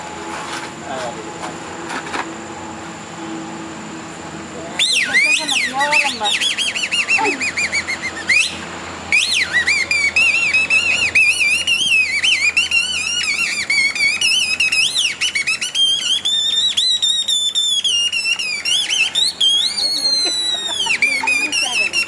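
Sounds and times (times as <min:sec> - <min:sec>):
shrill warbling reed whistle: 0:04.8 - 0:22.0.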